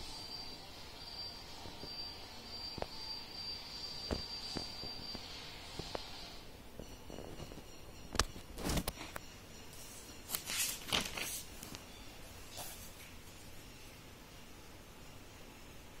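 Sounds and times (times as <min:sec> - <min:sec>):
paper notebook handled: 0:10.3 - 0:11.5
page turning: 0:10.3 - 0:11.8.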